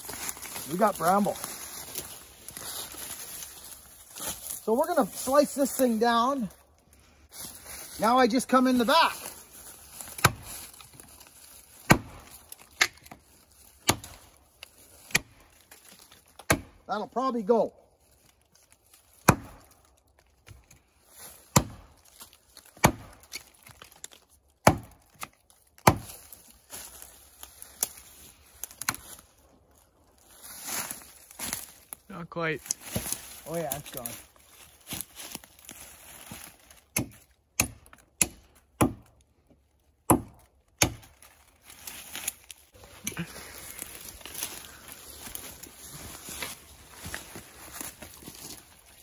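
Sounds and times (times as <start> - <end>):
footsteps crunching dry brush: 0.0 - 16.4, 17.8 - 37.5, 40.5 - 49.0
axe chopping wood: 10.1 - 10.6, 11.8 - 13.2, 13.8 - 14.3, 15.0 - 15.4, 16.4 - 16.8, 19.2 - 19.8, 21.5 - 22.0, 22.6 - 23.6, 24.6 - 26.3, 36.9 - 39.2, 40.0 - 41.2.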